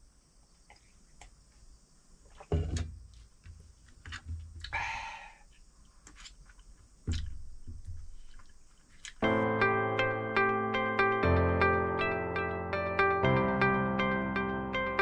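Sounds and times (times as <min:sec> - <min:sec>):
dull thumps: 0:02.3 - 0:04.7, 0:07.0 - 0:08.4.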